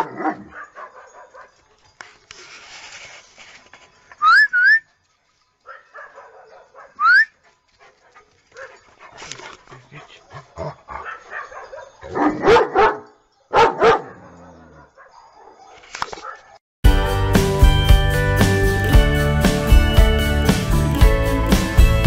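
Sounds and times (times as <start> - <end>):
dog barking deeply: 0.0 - 1.5, 10.4 - 16.6
dog yelping: 5.7 - 7.4, 8.6 - 16.6.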